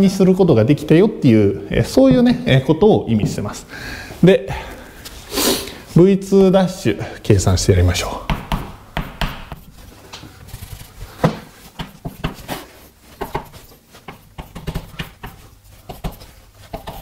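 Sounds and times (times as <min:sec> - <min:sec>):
pen writing on a surface: 0:14.1 - 0:17.0.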